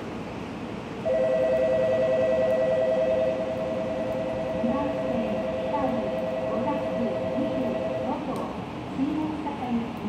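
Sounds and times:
electronic two-tone bell ringing: 1.1 - 8.0.

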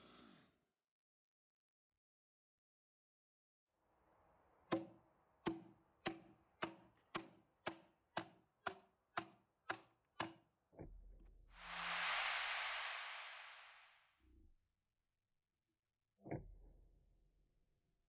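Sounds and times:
rushing hiss: 11.6 - 13.9.

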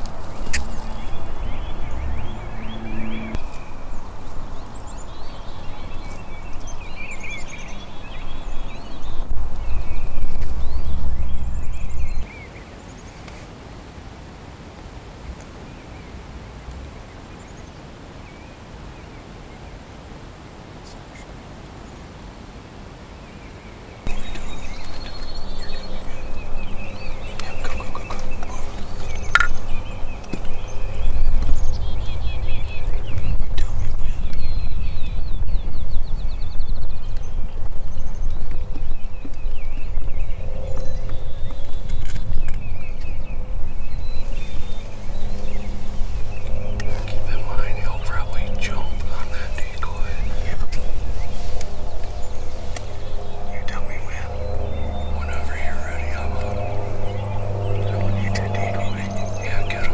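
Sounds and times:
steady low rumble: 0.0 - 12.3, 24.1 - 59.9
songbirds chirping: 0.0 - 59.9
wild turkey gobbling: 27.1 - 29.7.

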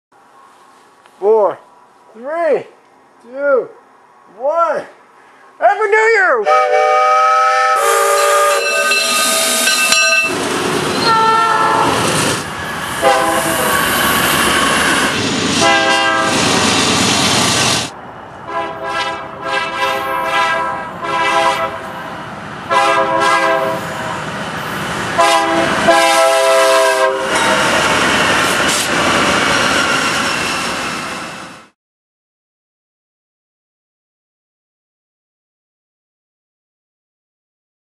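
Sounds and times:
engine and rail noise: 0.2 - 5.6, 6.4 - 31.8
diesel locomotive horn blasts: 6.4 - 10.4, 11.0 - 12.0, 13.0 - 13.7, 15.6 - 16.3, 18.5 - 22.0, 22.7 - 24.2, 25.2 - 27.8
steam locomotive whistle: 6.4 - 12.0, 13.0 - 13.9, 15.6 - 16.4, 18.5 - 21.9, 22.7 - 24.2, 25.2 - 27.8
freight train rumbling past: 6.4 - 31.8.

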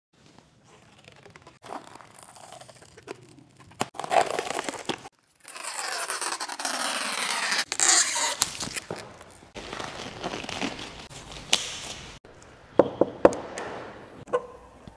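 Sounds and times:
plastic film peeling and crinkling: 0.6 - 12.2.

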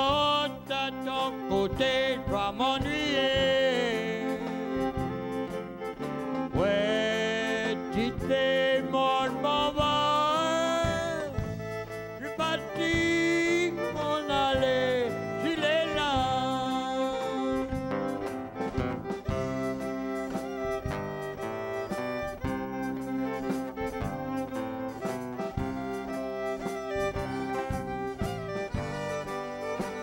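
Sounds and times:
man singing into microphone: 0.0 - 5.3, 6.5 - 11.6, 12.2 - 17.8
fiddle and acoustic guitar waltz: 0.0 - 30.0.

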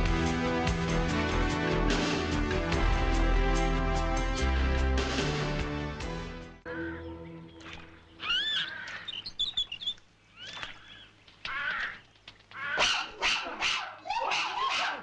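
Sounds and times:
chimpanzee screeching: 8.2 - 10.7, 11.5 - 15.0.

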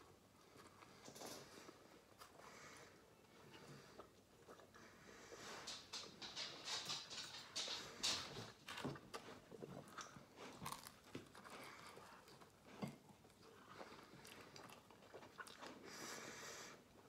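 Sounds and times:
person chewing food: 0.0 - 5.8, 8.3 - 17.0.

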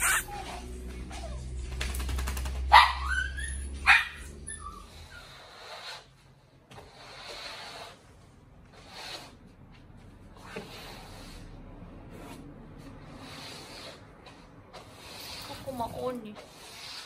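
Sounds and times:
broom sweeping wooden floor: 8.7 - 17.0.

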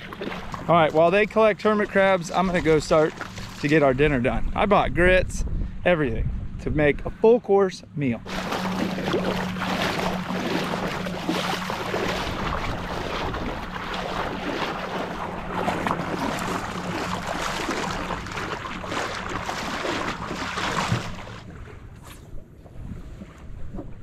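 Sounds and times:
feet splashing in water: 0.0 - 3.9, 8.2 - 22.2
wind on microphone: 3.5 - 7.3, 8.2 - 21.3.

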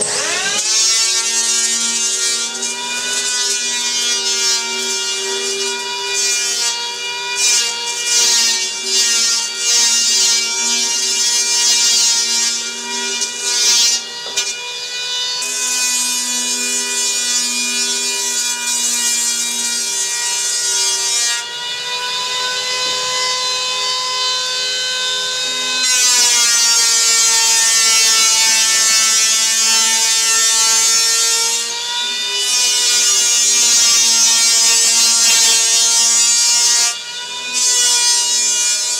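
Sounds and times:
electric planer motor whine: 0.0 - 8.0, 12.5 - 16.6, 17.2 - 38.9
foam being shaved: 0.0 - 14.6, 25.5 - 38.9.

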